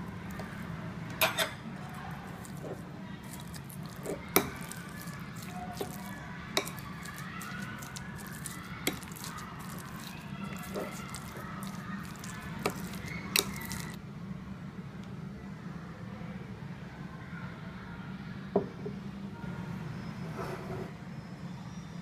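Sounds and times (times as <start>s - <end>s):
squishing of minced meat: 0.0s - 14.0s.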